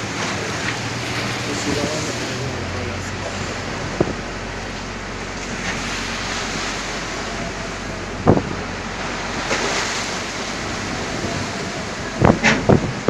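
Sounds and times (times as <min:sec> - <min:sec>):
rush of spray: 0:00.0 - 0:12.8
waves washing against boat hull: 0:00.0 - 0:13.0
strong wind on microphone: 0:05.5 - 0:09.4, 0:10.0 - 0:13.0.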